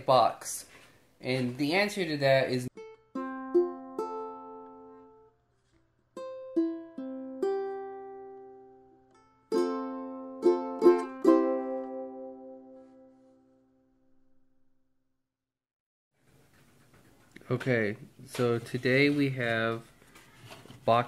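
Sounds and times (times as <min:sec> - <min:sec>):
strummed string instrument chords: 0:02.8 - 0:05.3, 0:06.2 - 0:13.2.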